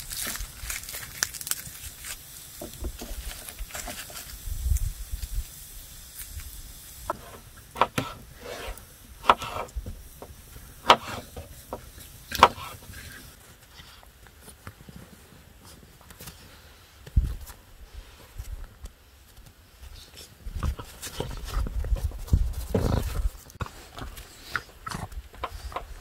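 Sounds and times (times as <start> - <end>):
garlic skins rustling: 0.0 - 4.9.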